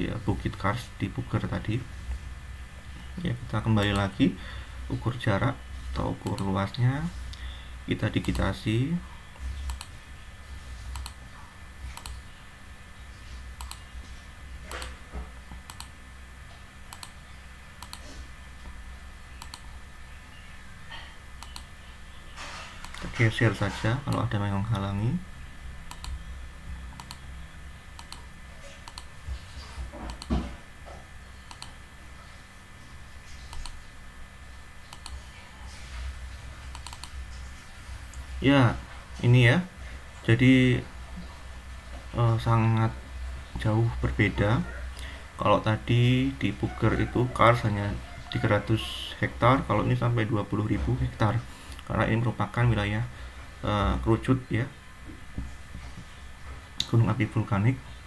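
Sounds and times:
low steady hum: 0:00.0 - 0:58.0
computer mouse clicking: 0:06.2 - 0:06.5, 0:08.2 - 0:08.5, 0:09.6 - 0:10.0, 0:10.9 - 0:11.2, 0:12.0 - 0:12.2, 0:13.6 - 0:13.9, 0:14.7 - 0:16.0, 0:16.9 - 0:17.2, 0:17.8 - 0:18.1, 0:19.4 - 0:19.7, 0:21.4 - 0:21.7, 0:22.8 - 0:23.1, 0:25.9 - 0:26.2, 0:26.9 - 0:27.2, 0:28.0 - 0:29.1, 0:30.1 - 0:30.3, 0:31.5 - 0:31.8, 0:33.5 - 0:33.8, 0:34.9 - 0:35.2, 0:36.7 - 0:37.2
mouse button clicking: 0:27.0 - 0:27.2.

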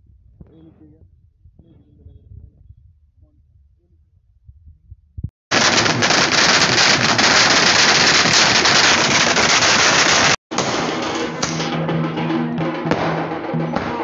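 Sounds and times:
firecrackers crackling: 0:05.5 - 0:11.8.

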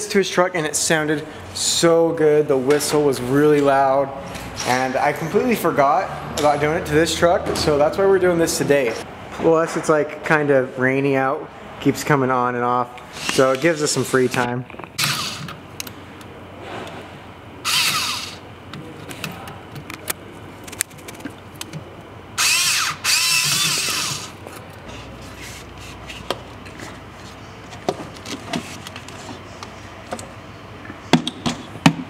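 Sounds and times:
power tool whirring: 0:13.1 - 0:15.6, 0:17.6 - 0:18.4, 0:22.4 - 0:24.4.

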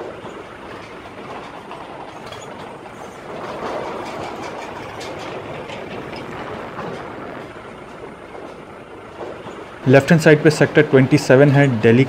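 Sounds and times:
vehicle road rumble: 0:00.0 - 0:12.0.

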